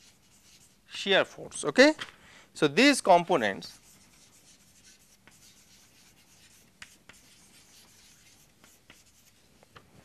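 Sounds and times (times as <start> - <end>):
chalk tapping on blackboard: 0.0 - 0.8, 3.7 - 9.8
chalk scratching on blackboard: 0.0 - 1.0, 3.4 - 9.6.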